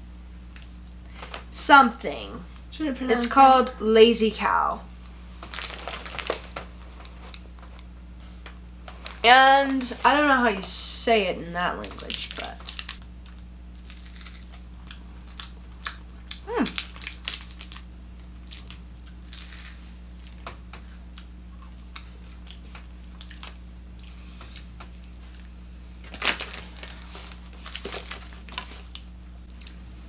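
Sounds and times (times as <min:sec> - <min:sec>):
low room hum: 0:00.0 - 0:30.0
snack wrapper crinkling: 0:05.4 - 0:07.8, 0:11.8 - 0:29.8
chocolate bar being chewed: 0:12.2 - 0:29.8.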